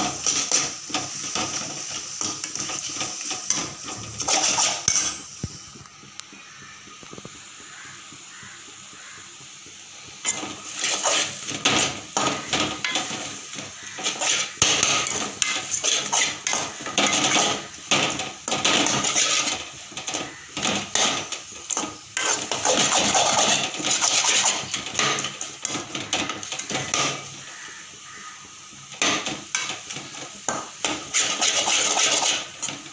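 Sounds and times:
metal spoon scraping metal pot: 2.2 - 5.2, 13.9 - 17.6, 18.6 - 19.6, 20.8 - 25.8, 30.8 - 32.7.

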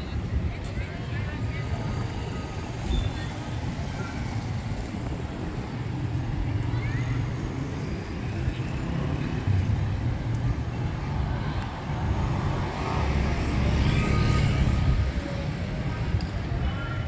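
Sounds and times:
low traffic rumble: 0.0 - 17.0
motor scooter passing: 12.4 - 15.6.

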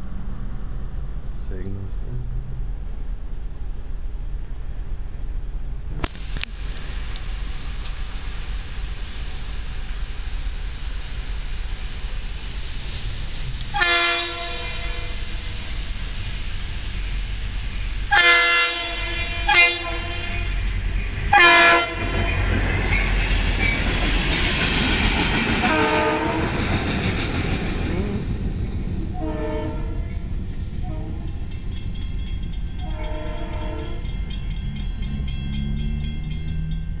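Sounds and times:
train rumbling and hissing past: 0.0 - 37.0
train horn blasts: 13.7 - 15.2, 18.1 - 20.6, 21.3 - 22.4, 25.6 - 26.6, 29.1 - 30.2, 30.8 - 31.4, 32.8 - 34.2.

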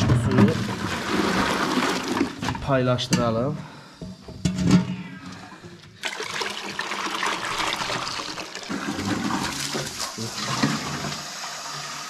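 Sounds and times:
water pouring into plastic bucket: 0.0 - 2.5, 6.0 - 12.0.

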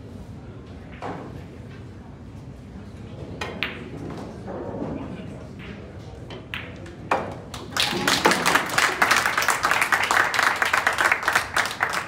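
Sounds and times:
spectators clapping: 7.4 - 12.0.

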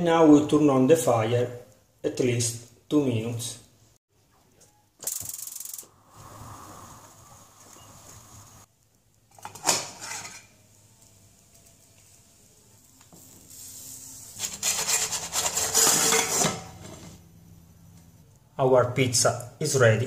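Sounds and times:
pan scraping against plate: 9.4 - 10.6, 14.4 - 17.2.

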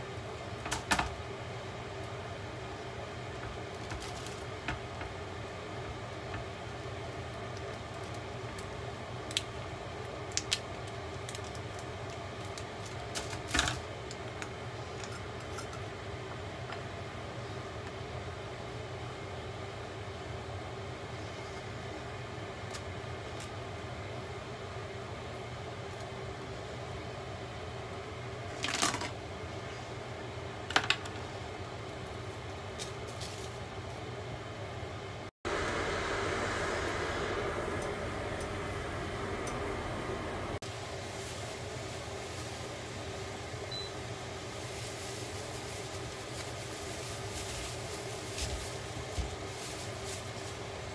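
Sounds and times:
steady low hum: 29.2 - 50.9
plastic wrap crackling: 44.5 - 50.7.

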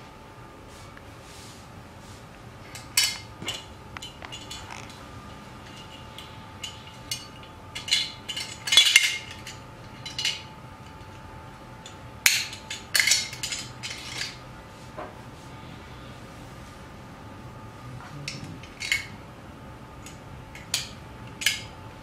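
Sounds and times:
metal parts clinking and clattering: 2.7 - 5.0, 5.6 - 11.2, 11.8 - 14.4, 18.3 - 19.1, 20.0 - 21.7.

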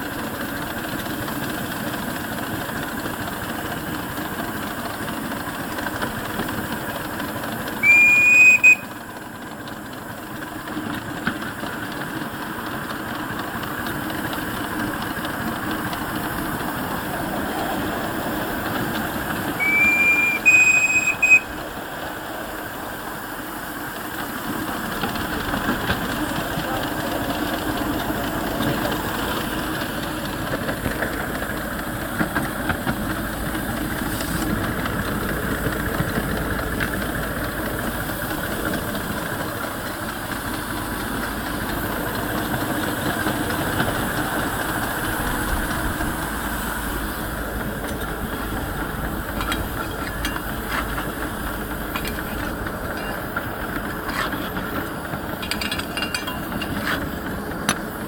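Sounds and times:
miniature locomotive running: 0.0 - 58.0
steam hissing: 0.0 - 58.0
sharp clicks and knocks: 47.6 - 58.0.

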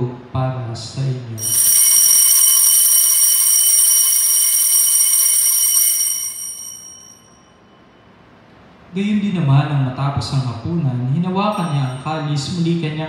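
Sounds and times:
altar bell ringing: 1.4 - 8.1, 11.5 - 12.7.

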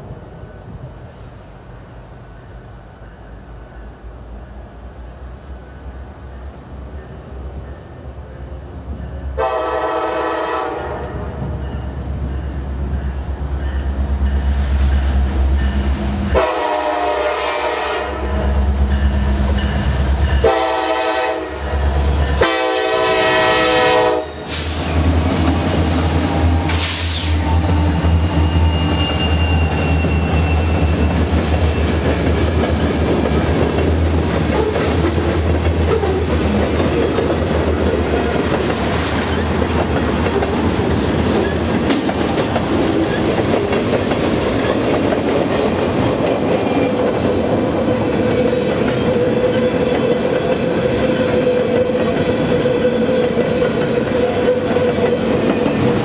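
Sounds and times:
train horn: 9.3 - 11.4, 16.3 - 18.7, 20.3 - 24.8
locomotive engine drone: 10.9 - 17.2, 18.0 - 44.6
wheels clacking over rail joints: 28.7 - 56.0.

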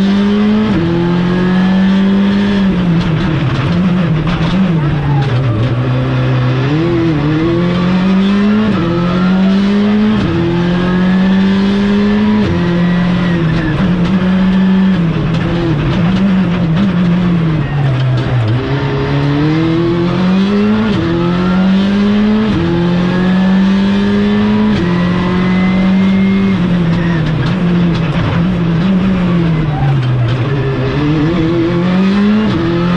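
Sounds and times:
car engine revving hard: 0.0 - 32.9.

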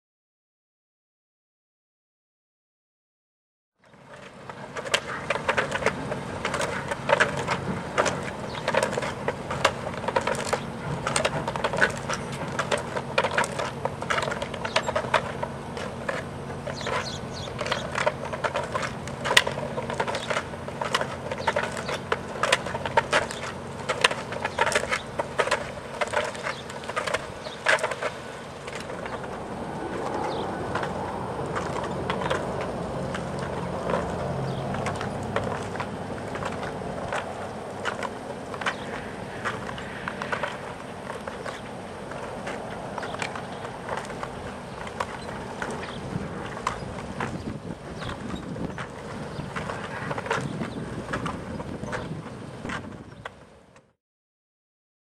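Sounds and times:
stilts clacking on concrete: 3.8 - 53.9
steady low hum: 3.9 - 53.2.

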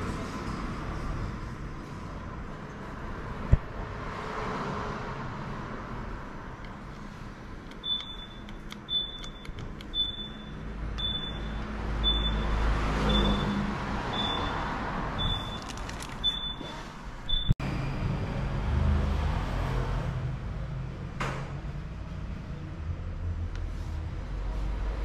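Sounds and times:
high electronic beeps: 7.8 - 14.6, 15.2 - 15.6, 17.3 - 17.6.

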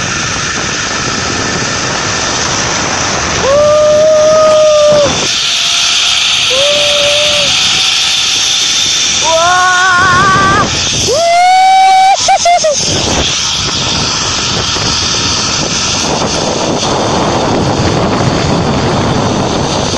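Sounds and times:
wind rushing past microphone: 0.0 - 19.9
zip-line trolley hissing on cable: 0.0 - 19.9
person yelling: 3.4 - 5.1, 6.5 - 7.6, 9.2 - 12.8.

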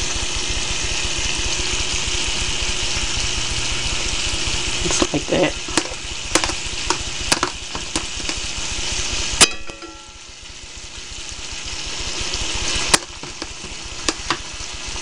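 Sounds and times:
fish frying in oil: 0.0 - 15.0
ringing metal clank: 9.4 - 10.3.

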